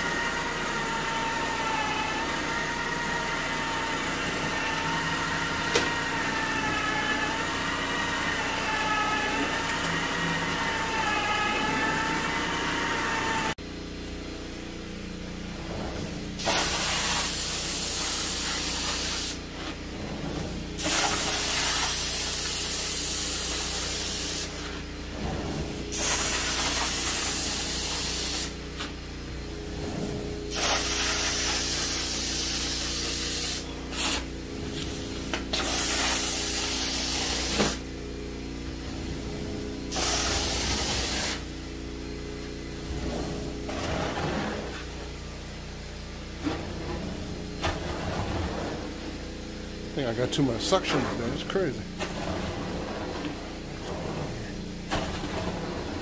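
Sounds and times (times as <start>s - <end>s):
whirring machine: 0.0s - 13.7s
vacuum motor hum: 0.0s - 56.0s
extraction wand spraying and sucking: 15.8s - 37.9s, 38.8s - 41.6s.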